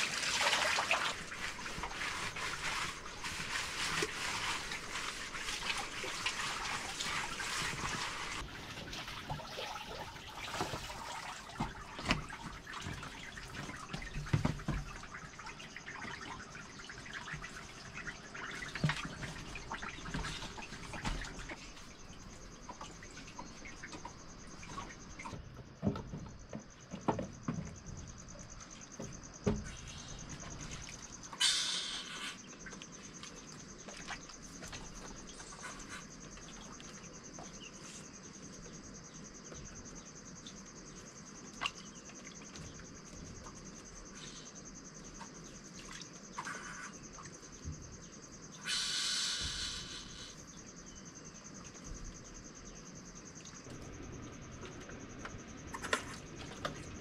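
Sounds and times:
water splashing and trickling: 0:00.0 - 0:57.0
insect chirring: 0:13.2 - 0:57.0.

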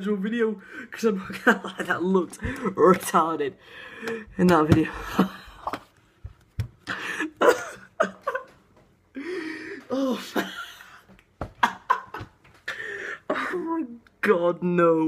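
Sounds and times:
young man laughing hard: 0:06.8 - 0:08.6, 0:10.0 - 0:12.4.

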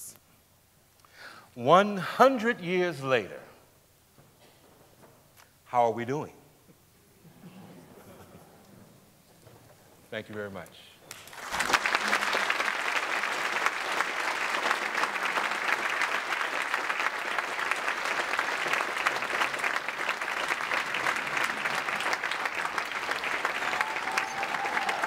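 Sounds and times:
audience applauding: 0:11.1 - 0:25.0.

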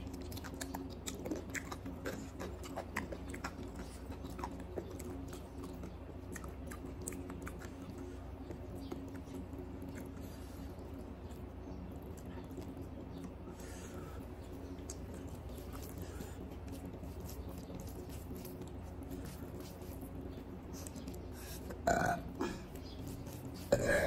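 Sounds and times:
steady hum: 0:00.0 - 0:24.0
loud burp: 0:21.8 - 0:22.6, 0:23.7 - 0:24.0.

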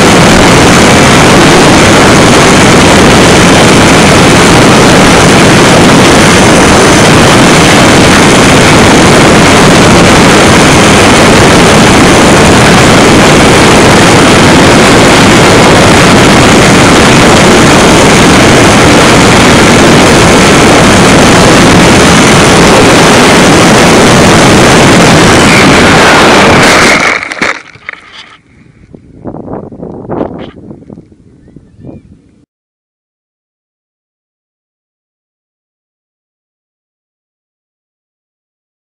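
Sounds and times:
model plane motor and airflow: 0:00.0 - 0:28.4.

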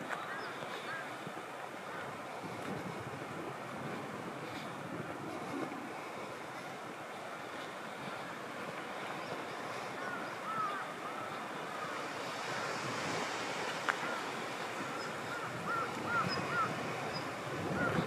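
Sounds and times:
wind rushing: 0:12.0 - 0:18.0.

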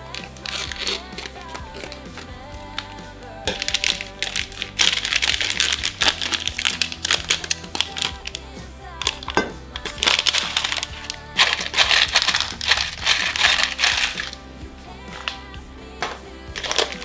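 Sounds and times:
background music: 0:00.0 - 0:17.0
dry food rattling into metal bowl: 0:03.5 - 0:08.4, 0:09.0 - 0:14.4, 0:15.0 - 0:17.0.

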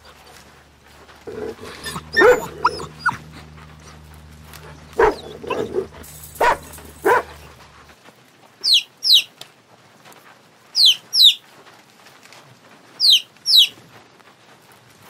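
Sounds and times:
baby chicks peeping: 0:13.0 - 0:13.8.

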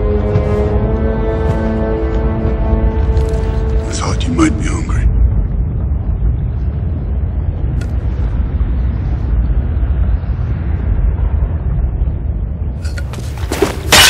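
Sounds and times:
deep rumbling drone: 0:00.0 - 0:14.0.

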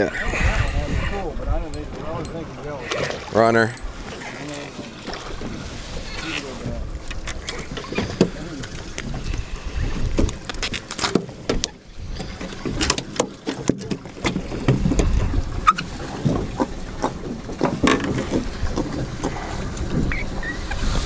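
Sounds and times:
wind and water against hull: 0:00.0 - 0:21.0
tackle clicks and knocks: 0:12.4 - 0:20.2.

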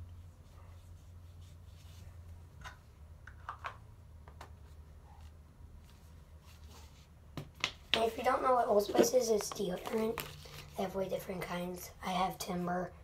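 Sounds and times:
faint rubbing and handling: 0:00.0 - 0:02.4, 0:04.6 - 0:07.2
low steady hum: 0:00.0 - 0:13.0.

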